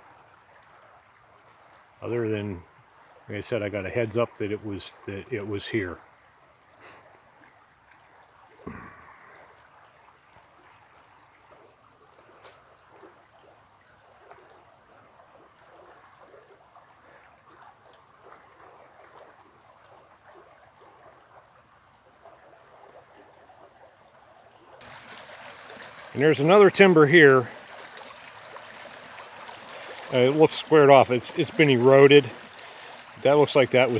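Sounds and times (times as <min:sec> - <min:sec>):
creek babbling: 0:00.0 - 0:33.9
thump: 0:08.6 - 0:09.0.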